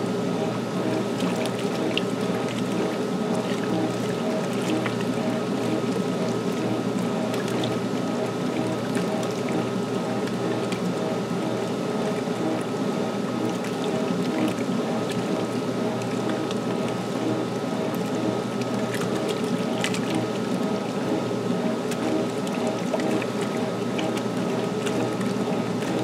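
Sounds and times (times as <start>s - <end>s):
washing machine humming: 0.0s - 26.0s
water sloshing: 1.0s - 12.6s.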